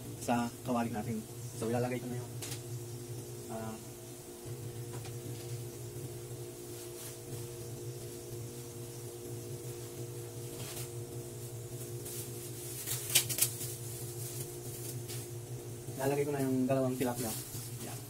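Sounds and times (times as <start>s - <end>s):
sauce simmering in a wok: 0.0s - 12.9s
low hum: 0.0s - 18.0s.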